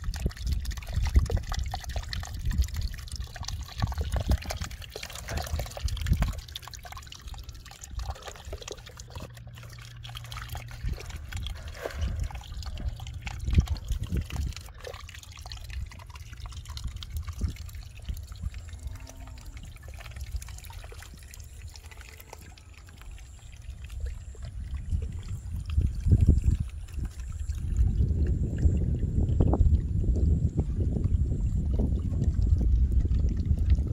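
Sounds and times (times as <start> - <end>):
rainwater trickling into puddle: 0.0 - 33.9
low rumble: 7.3 - 33.9.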